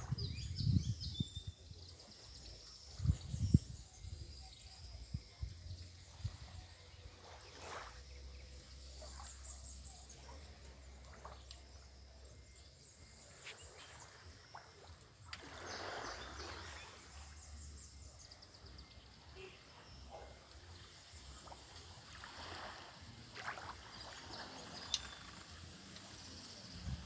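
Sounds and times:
wind: 0.0 - 27.0
water lapping: 13.6 - 17.6, 19.5 - 26.6.

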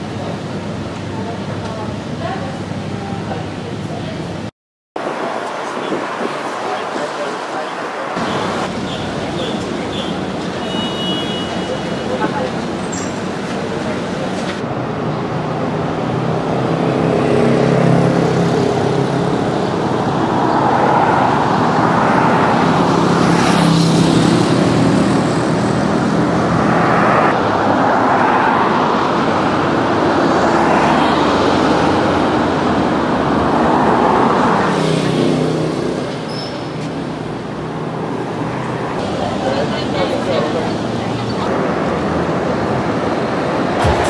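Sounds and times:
rushing noise: 40.4 - 44.0.

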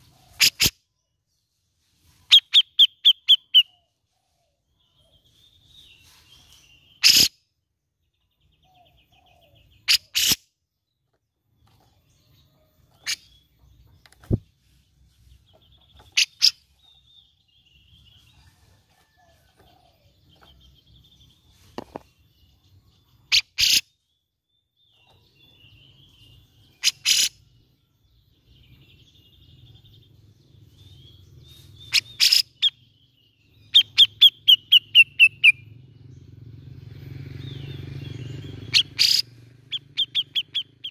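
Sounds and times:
bird harsh calls: 0.0 - 0.9, 2.3 - 7.5, 8.6 - 10.6, 15.5 - 17.4, 23.0 - 24.1, 24.9 - 27.7, 30.8 - 40.9
faint bird twittering: 0.0 - 7.5, 11.0 - 40.9.

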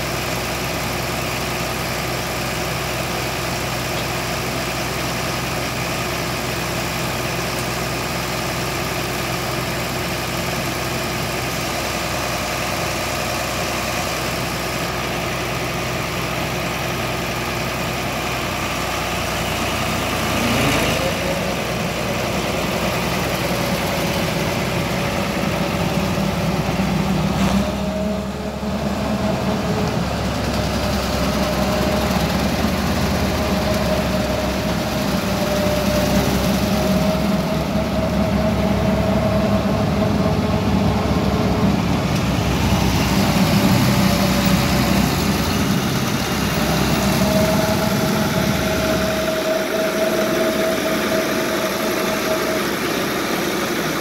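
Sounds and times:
tractor engine idling: 0.0 - 54.0
thin wavering whine: 17.9 - 54.0.

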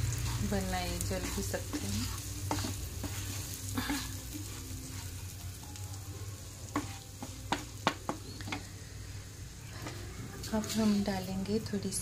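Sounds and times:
spatula scraping a pan: 0.0 - 5.4, 6.7 - 8.7, 9.7 - 11.2
faint oil sizzle: 0.0 - 12.0
spatula tapping on a pan: 6.7 - 8.7.

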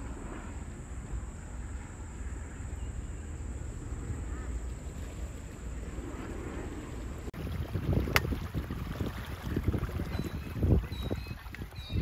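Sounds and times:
wind buffeting microphone: 3.2 - 12.0.

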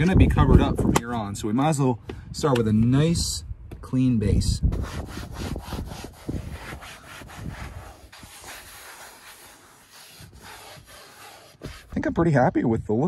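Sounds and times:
wipe scrubbing leather seat: 4.7 - 12.1.

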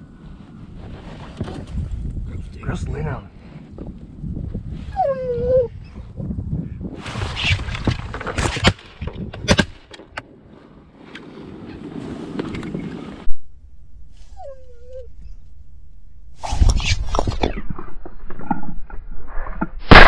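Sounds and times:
rustling and clatter: 0.8 - 2.2, 7.0 - 10.3
dog whimpering: 4.9 - 5.7, 14.2 - 15.5.

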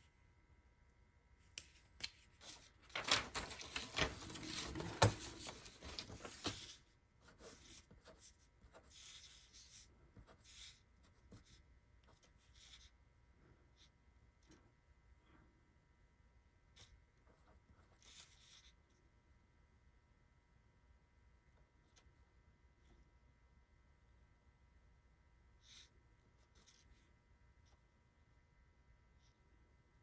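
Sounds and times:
paper sliding and rustling: 2.3 - 6.8
pen scratching on paper: 6.4 - 13.0, 16.7 - 18.8.

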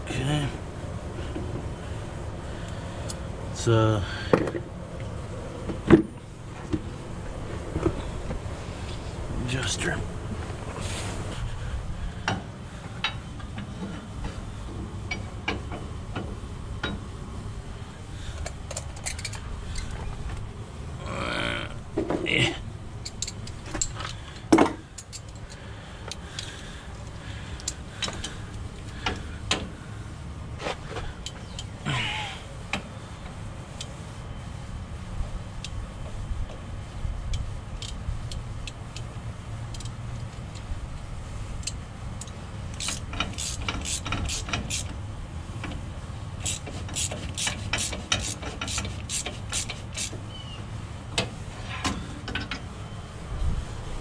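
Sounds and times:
steady low rumble: 0.0 - 42.8, 53.1 - 54.0
hand tools clicking on metal: 41.6 - 44.9, 46.4 - 50.2.

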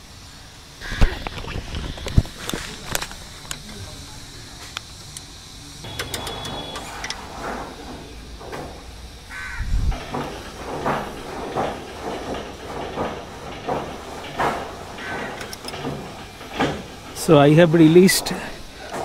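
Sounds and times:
spanner loosening bolt: 5.8 - 7.2, 13.8 - 17.4.

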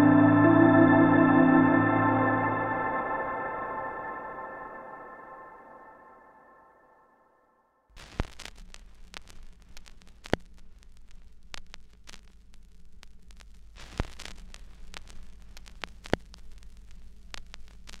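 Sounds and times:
static clicks and pops: 8.0 - 18.0.

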